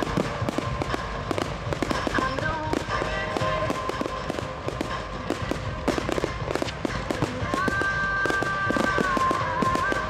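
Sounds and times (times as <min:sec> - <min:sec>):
continuous fireworks rush: 0:00.0 - 0:10.0
fireworks crackling and popping: 0:00.0 - 0:10.0
fireworks sharp reports: 0:00.0 - 0:10.0.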